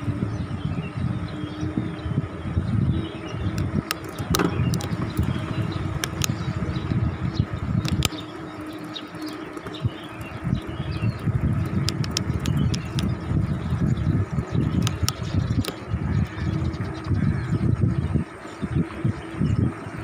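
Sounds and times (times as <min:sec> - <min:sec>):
wind buffeting microphone: 0:00.0 - 0:20.0
bicycle clicks and rattles: 0:03.3 - 0:17.6.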